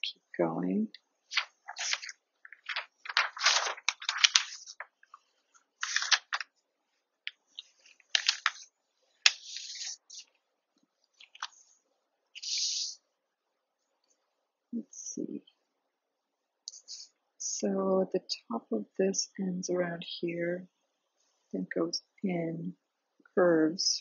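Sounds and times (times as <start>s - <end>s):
paper rustling and sliding: 1.3s - 6.5s, 7.6s - 10.3s, 11.2s - 11.7s.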